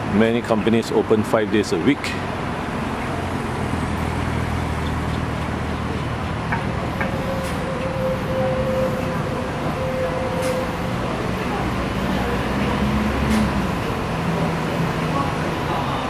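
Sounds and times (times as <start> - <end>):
low engine drone of traffic: 0.0 - 16.0
steady whine: 5.4 - 16.0.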